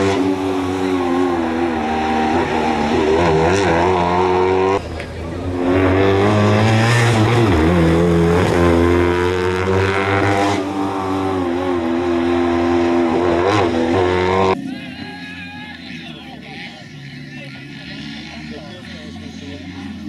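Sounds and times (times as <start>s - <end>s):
rally car engine revving: 0.0s - 15.0s.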